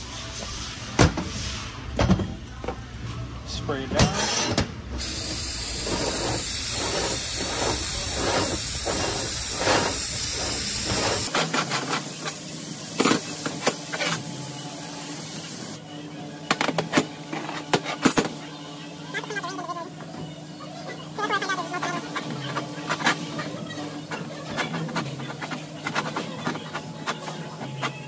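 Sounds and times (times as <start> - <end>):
spray can hissing: 5.0 - 15.8.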